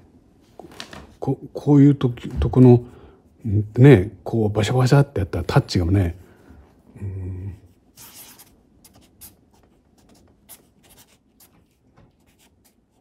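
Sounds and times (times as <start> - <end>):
pen scratching on paper: 7.9 - 13.0.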